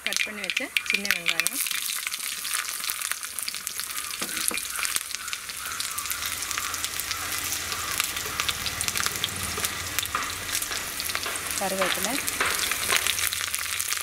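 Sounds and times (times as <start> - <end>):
shallots sizzling in hot oil: 0.0 - 14.0.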